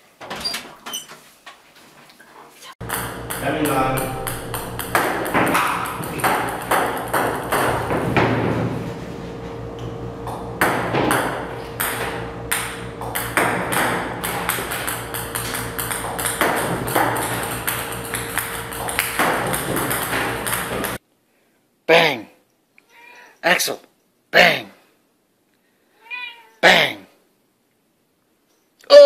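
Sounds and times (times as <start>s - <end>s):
ping-pong balls bouncing on table: 2.8s - 8.4s, 10.3s - 21.0s
steady hum: 2.8s - 21.0s.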